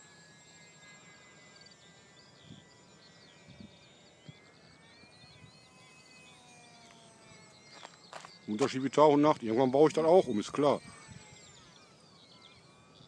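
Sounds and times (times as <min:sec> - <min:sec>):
model plane motor whine: 0:00.0 - 0:13.0
birds chirping: 0:00.7 - 0:13.0.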